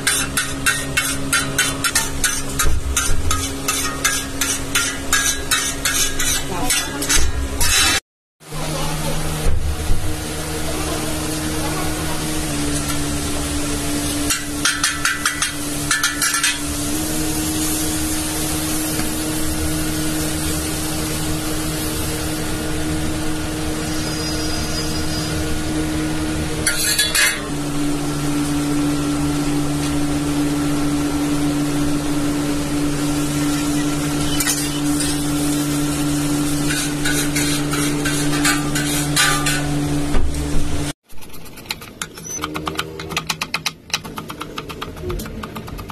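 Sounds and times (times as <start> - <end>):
spatula tapping and scraping griddle: 0.0 - 8.0, 14.2 - 16.7, 26.6 - 27.5, 34.2 - 35.3, 36.6 - 39.8
buns sizzling on a griddle: 10.7 - 24.5, 32.6 - 39.6.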